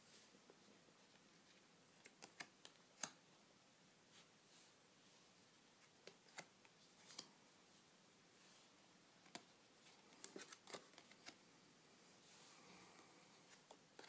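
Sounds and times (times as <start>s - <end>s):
playing cards clicking and snapping: 2.0s - 3.2s.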